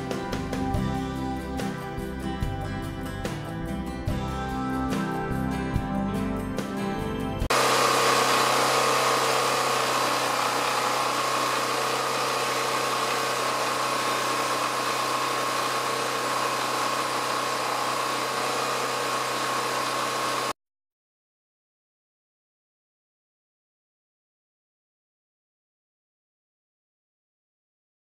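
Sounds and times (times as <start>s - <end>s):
high generator whine: 7.5s - 20.5s
generator engine hum: 7.5s - 20.6s.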